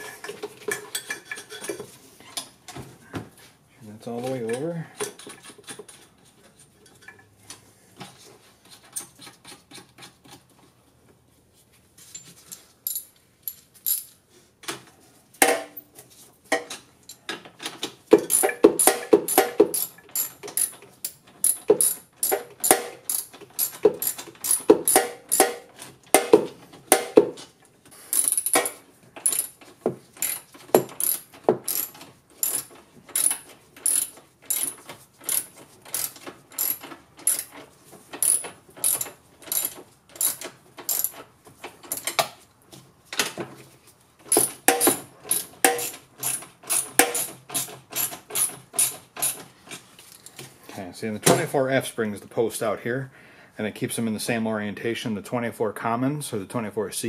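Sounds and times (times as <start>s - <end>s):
ratchet wrench clicking: 18.2s - 25.6s, 28.1s - 29.6s, 30.2s - 37.6s, 38.2s - 41.2s, 44.3s - 49.4s.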